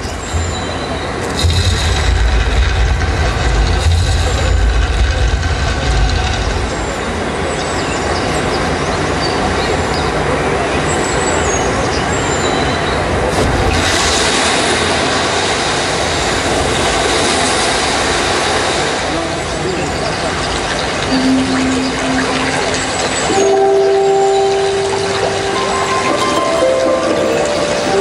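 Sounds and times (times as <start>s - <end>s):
steady rushing hiss: 0.0s - 7.5s, 21.0s - 28.0s
low rumble over loudspeakers: 0.0s - 7.6s.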